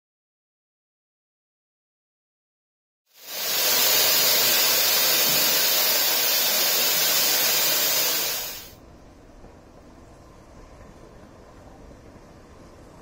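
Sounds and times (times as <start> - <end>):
steam locomotive hissing: 3.2 - 8.8.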